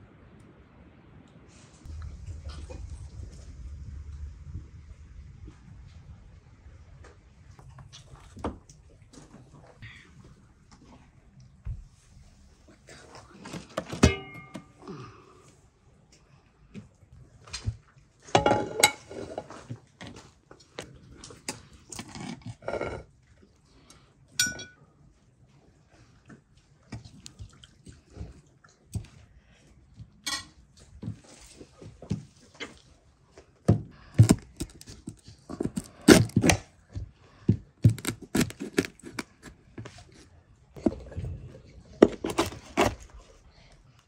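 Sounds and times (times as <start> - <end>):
dishes knocking: 13.9 - 14.7
metal utensils scraping a pot: 18.4 - 19.6
knife scraping pot bottom: 38.0 - 39.5.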